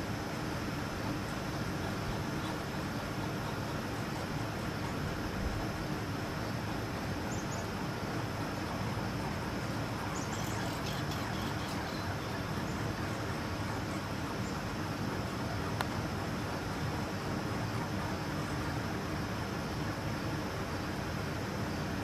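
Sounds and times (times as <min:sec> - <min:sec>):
distant road traffic rumble: 0:00.0 - 0:22.0
faint high chirps: 0:09.8 - 0:14.6.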